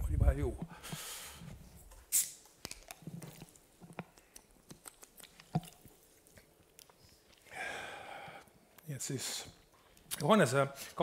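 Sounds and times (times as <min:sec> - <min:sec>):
man gulping: 0:05.0 - 0:08.6.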